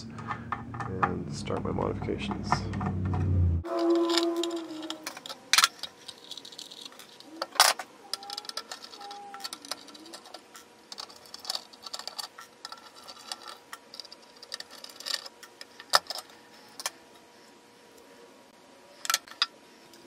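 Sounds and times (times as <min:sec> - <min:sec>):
small parts clicking: 0:02.3 - 0:17.0, 0:19.0 - 0:20.0.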